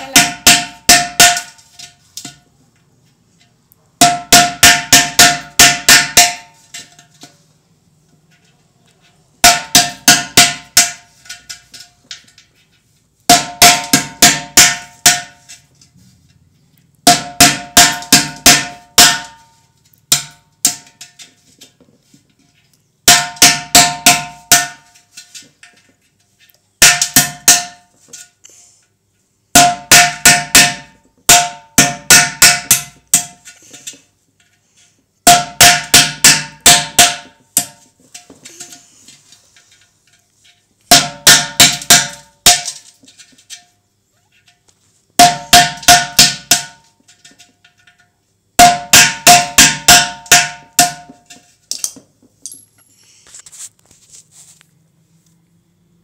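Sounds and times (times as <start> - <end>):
hammering nail into clay pot: 4.0 - 6.5, 13.3 - 15.3, 17.0 - 19.4, 23.1 - 24.9, 29.6 - 33.4, 35.3 - 37.8, 40.9 - 42.8, 45.2 - 46.8, 48.6 - 51.2.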